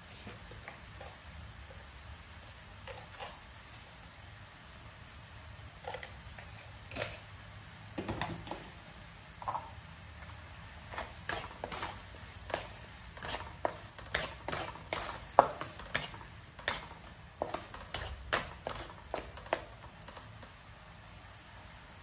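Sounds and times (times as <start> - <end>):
wooden spatula scraping a metal wok: 2.8 - 3.5, 5.8 - 7.4, 10.8 - 20.5.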